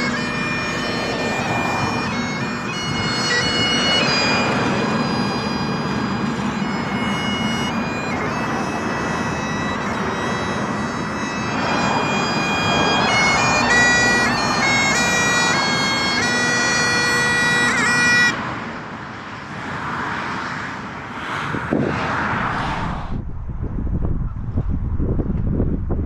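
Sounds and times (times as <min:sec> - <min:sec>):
reedy sustained music notes: 0:00.0 - 0:18.4
wind buffeting microphone: 0:00.3 - 0:06.9, 0:21.4 - 0:26.0.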